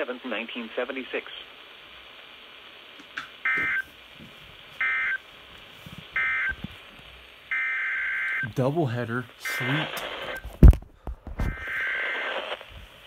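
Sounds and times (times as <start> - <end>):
shrill buzzing data bursts: 7.3 - 10.4.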